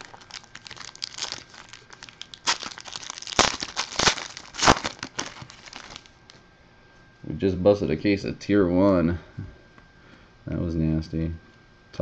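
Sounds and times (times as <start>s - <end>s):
wrappers ripping: 0.0s - 6.1s
card pack wrappers crinkling: 0.0s - 6.2s.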